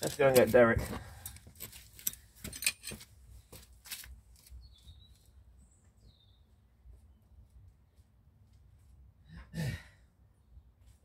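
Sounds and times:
faint high bird chirps: 0:04.5 - 0:06.6.

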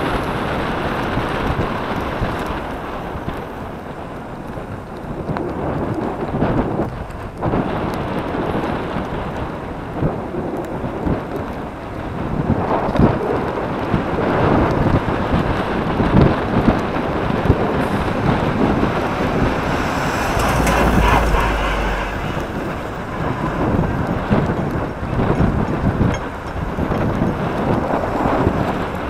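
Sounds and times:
road rumble: 0:00.0 - 0:29.0
wind buffeting microphone: 0:00.0 - 0:29.0
deep rumble: 0:16.3 - 0:29.0.

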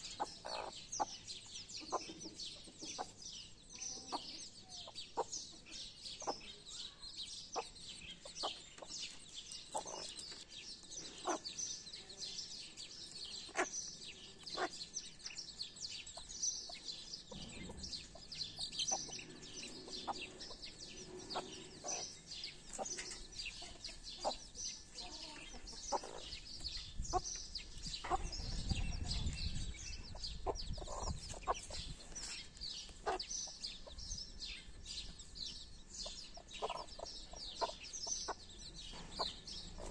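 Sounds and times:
hen clucking: 0:00.0 - 0:01.2, 0:01.8 - 0:03.2, 0:04.0 - 0:05.6, 0:07.6 - 0:09.0, 0:09.7 - 0:10.3, 0:11.0 - 0:11.5, 0:13.3 - 0:15.1, 0:16.0 - 0:34.0, 0:36.0 - 0:39.9
chicks peeping: 0:00.0 - 0:39.9.

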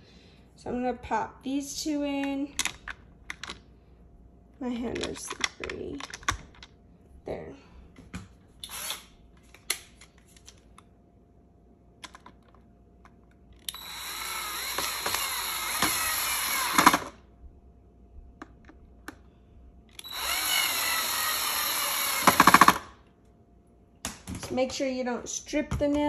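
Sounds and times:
cordless drill driving screws: 0:08.6 - 0:09.1, 0:13.7 - 0:17.1, 0:20.0 - 0:22.8.

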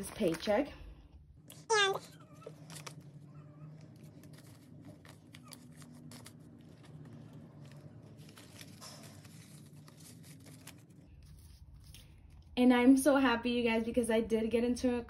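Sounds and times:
low steady hum: 0:00.0 - 0:15.0
paper money rustling: 0:03.8 - 0:12.2.

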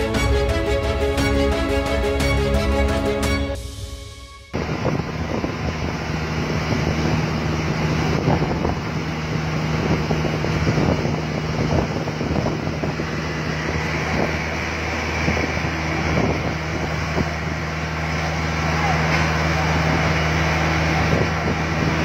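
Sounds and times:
wind buffeting microphone: 0:04.6 - 0:18.2, 0:19.7 - 0:22.0.

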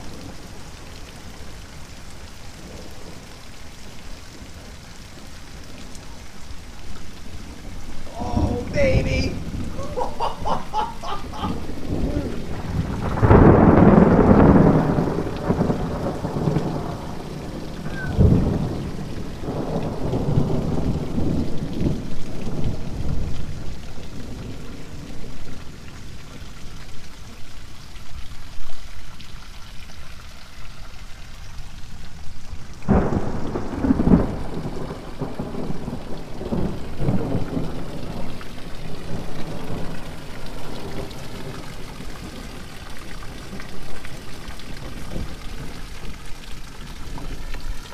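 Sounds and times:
heavy rain: 0:00.0 - 0:47.9
thunder rumbling: 0:07.1 - 0:25.8, 0:32.8 - 0:46.0
thunder crack: 0:08.3 - 0:17.2, 0:17.8 - 0:23.2, 0:32.9 - 0:38.2.

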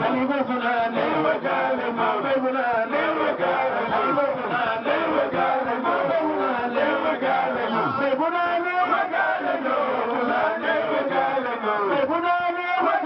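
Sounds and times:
men chanting: 0:00.0 - 0:13.0
lead voice on microphone: 0:03.8 - 0:04.9, 0:07.6 - 0:09.1, 0:11.6 - 0:13.0.

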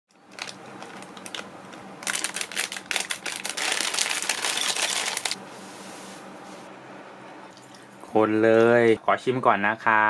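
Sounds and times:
plastic packet crinkling: 0:00.1 - 0:05.4
dry noodles rattling into a bowl: 0:00.3 - 0:05.4.

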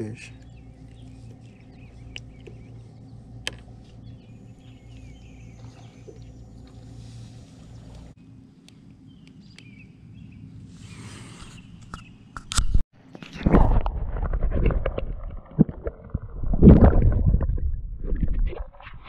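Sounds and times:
birds chirping: 0:00.0 - 0:12.4
steady low hum: 0:00.0 - 0:12.4.

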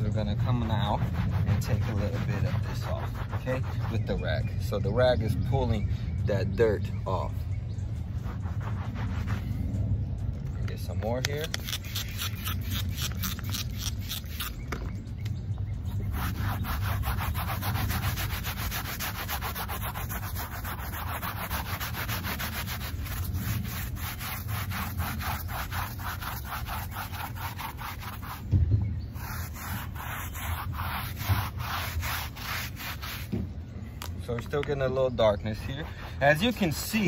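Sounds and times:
brush scrubbing carpeted floor mat: 0:00.1 - 0:04.3, 0:08.2 - 0:09.5, 0:16.0 - 0:28.5, 0:29.2 - 0:33.4, 0:35.4 - 0:37.0.

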